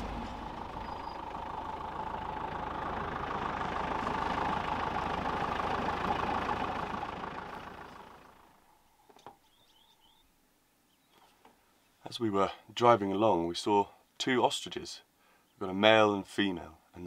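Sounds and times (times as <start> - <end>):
vehicle engine and tyre noise: 0.0 - 9.4.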